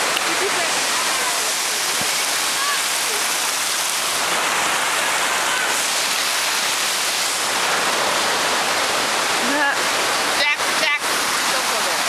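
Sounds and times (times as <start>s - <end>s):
creek water rushing over rocks: 0.0s - 12.0s.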